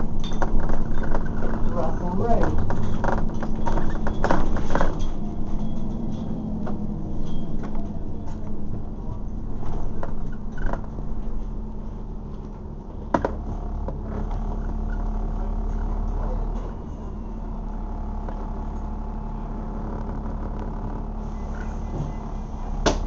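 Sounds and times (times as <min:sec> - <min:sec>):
interior fittings rattling: 0:00.0 - 0:15.0
bus engine humming: 0:00.0 - 0:23.0.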